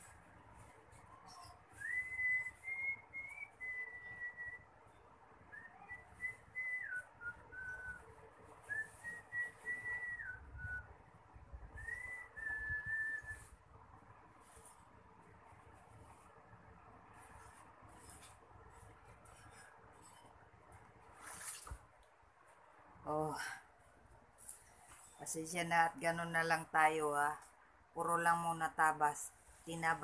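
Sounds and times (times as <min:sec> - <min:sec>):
person whistling a slow tune: 0:01.8 - 0:04.6, 0:05.5 - 0:08.0, 0:08.7 - 0:11.0, 0:11.8 - 0:13.5
fabric rustling: 0:12.9 - 0:22.7, 0:23.6 - 0:25.3.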